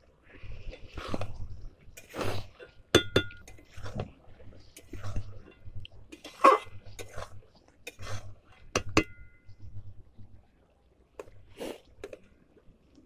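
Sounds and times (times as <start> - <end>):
steel spatula scraping a pan: 2.0 - 9.6.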